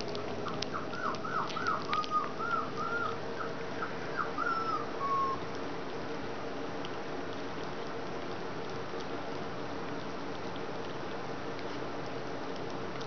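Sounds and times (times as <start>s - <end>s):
puppies eating clicking and smacking: 0.0s - 13.0s
puppies whining: 0.4s - 5.5s.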